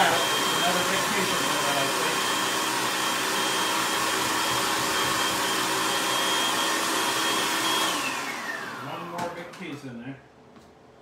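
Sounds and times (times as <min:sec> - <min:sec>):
food processor motor whining: 0:00.0 - 0:09.6.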